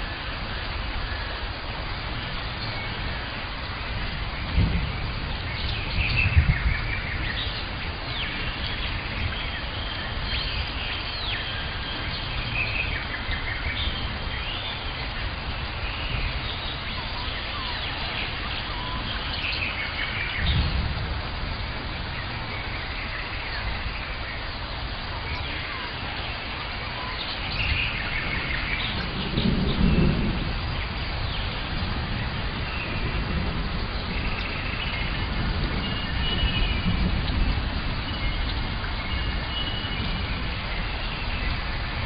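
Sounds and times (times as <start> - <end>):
steady hiss: 0.0 - 42.0
birds chirping and whistling: 5.3 - 20.8, 25.2 - 33.2, 33.9 - 42.0
low rumbles: 18.7 - 42.0.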